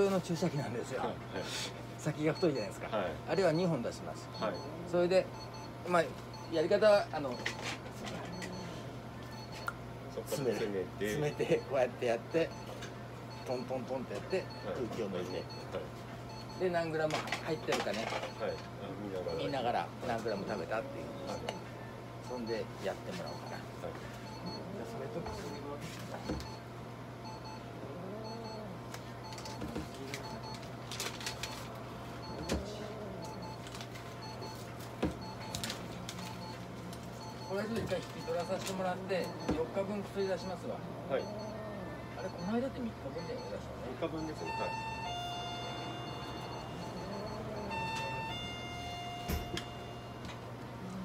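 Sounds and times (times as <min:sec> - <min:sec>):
steady low hum: 0:00.0 - 0:51.0
steady electronic tone: 0:42.2 - 0:50.4.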